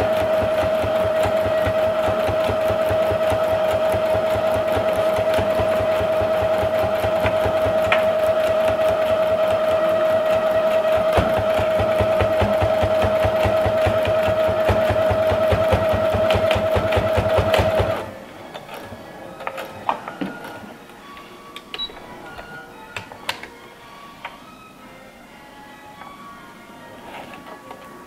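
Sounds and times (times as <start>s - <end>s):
sewing machine stitching: 0.0s - 20.6s.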